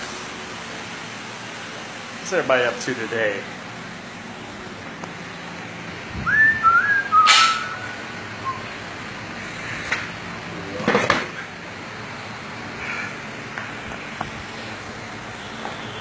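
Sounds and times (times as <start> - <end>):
man whistling: 6.2 - 8.7.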